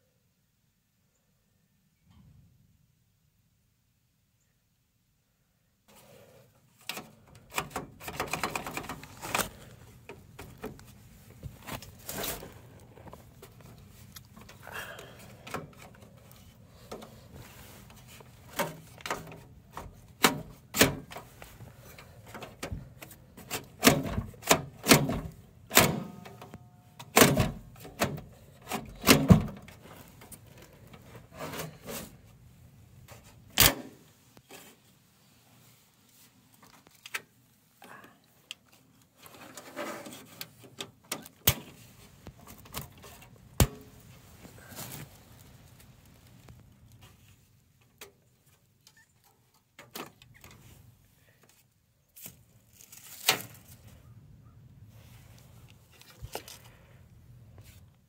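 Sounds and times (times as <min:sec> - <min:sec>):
computer case clicks and knocks: 0:23.8 - 0:28.3, 0:29.0 - 0:29.7.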